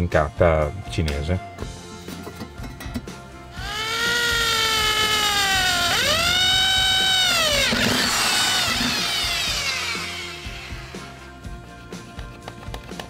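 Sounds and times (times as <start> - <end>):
electric drill whining: 3.6 - 11.4.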